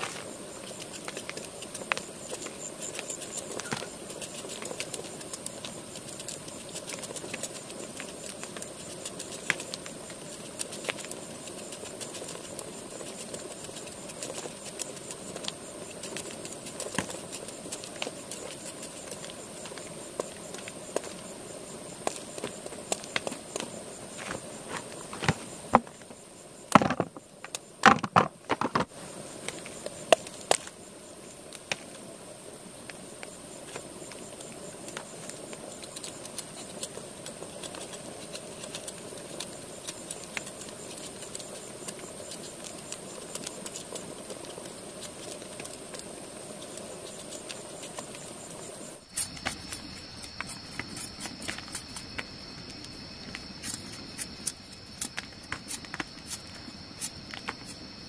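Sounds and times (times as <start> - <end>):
insects chirping: 0.0 - 58.0.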